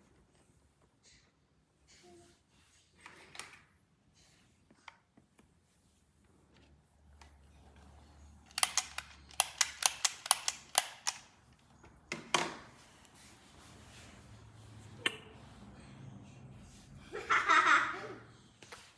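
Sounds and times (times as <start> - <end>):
plastic toy camera clicking: 8.5 - 11.3.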